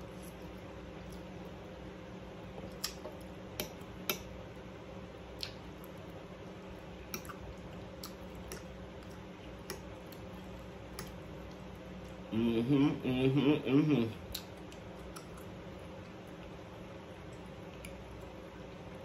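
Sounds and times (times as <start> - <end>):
steady low hum: 0.0 - 19.0
wet mouth clicks while chewing: 2.5 - 4.3, 5.3 - 6.1, 7.0 - 11.7, 14.2 - 16.2.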